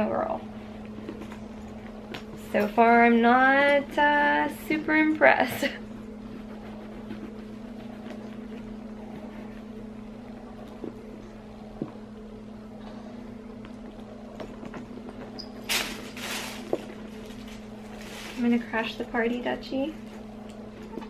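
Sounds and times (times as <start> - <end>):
rustling: 15.2 - 18.8.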